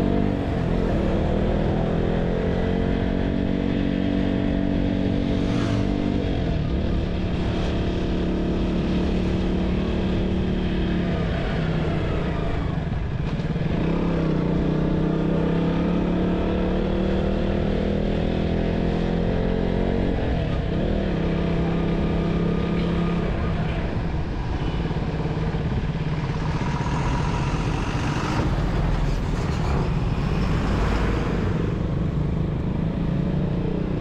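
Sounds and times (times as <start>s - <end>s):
motorcycle engine running: 20.7s - 29.1s.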